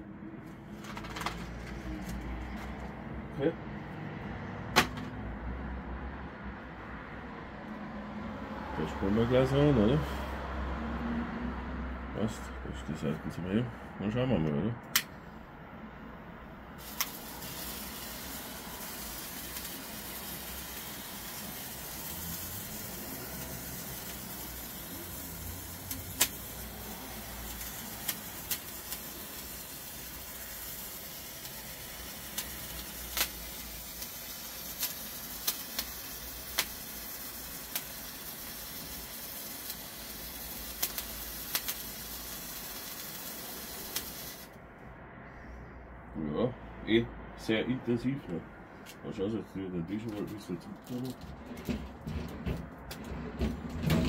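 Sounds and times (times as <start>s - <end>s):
sparkler hissing and crackling: 16.8s - 44.6s.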